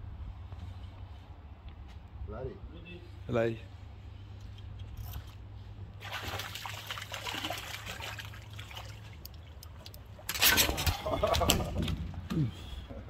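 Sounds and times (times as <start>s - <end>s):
water splashing and trickling: 5.0s - 12.2s.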